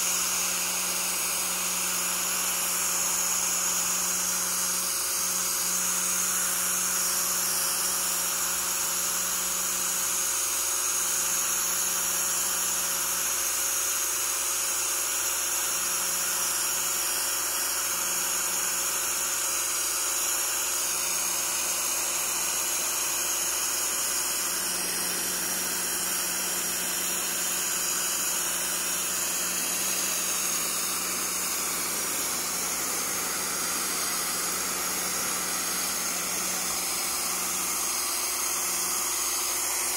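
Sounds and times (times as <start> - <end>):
pressure washer pump humming: 0.0 - 8.9, 18.6 - 39.9
high-pressure water jet hissing: 23.0 - 39.9.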